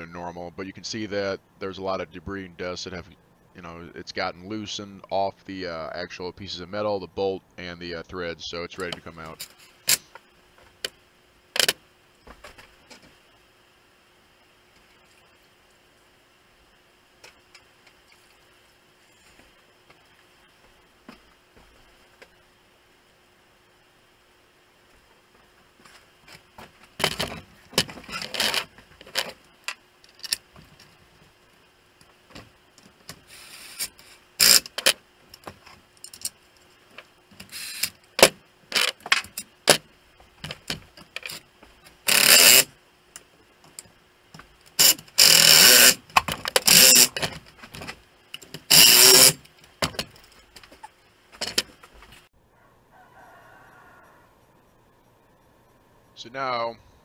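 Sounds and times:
metal rasping: 0:42.0 - 0:42.7, 0:44.8 - 0:46.0, 0:46.6 - 0:47.2, 0:48.6 - 0:49.4.

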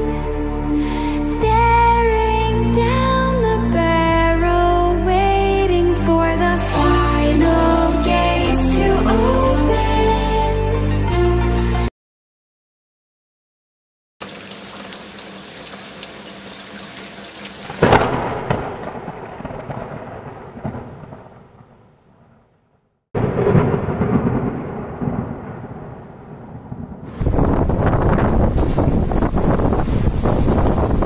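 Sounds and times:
steady rain hiss: 0:14.2 - 0:18.1, 0:27.1 - 0:31.0
thunder clap and rumble: 0:17.7 - 0:22.5, 0:23.2 - 0:31.0
long rumble of thunder: 0:17.8 - 0:22.5, 0:23.2 - 0:31.0.

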